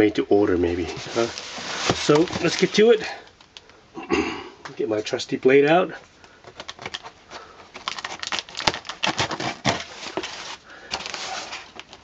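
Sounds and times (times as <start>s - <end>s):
razor blade slitting packing tape: 7.9s - 10.2s.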